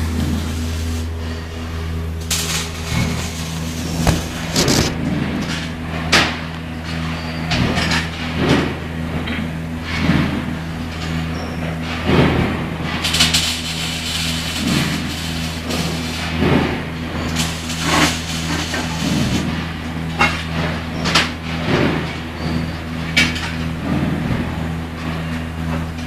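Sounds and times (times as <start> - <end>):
machinery hum: 0.0 - 26.0
knocks and clatters: 2.3 - 6.4.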